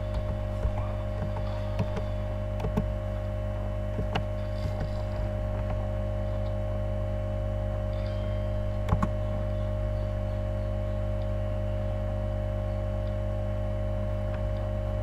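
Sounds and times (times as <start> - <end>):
constant mid-pitched tone: 0.0 - 15.0
low electrical hum: 0.0 - 15.0
keyboard keystrokes: 0.1 - 2.9, 8.8 - 9.2.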